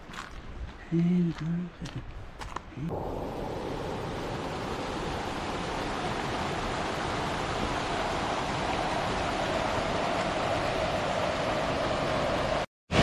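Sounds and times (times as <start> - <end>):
water rushing in a stream: 2.9 - 12.7.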